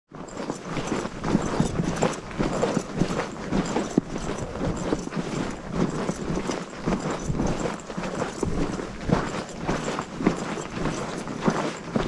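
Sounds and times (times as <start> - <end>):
footsteps crunching through snow: 0.2 - 12.0.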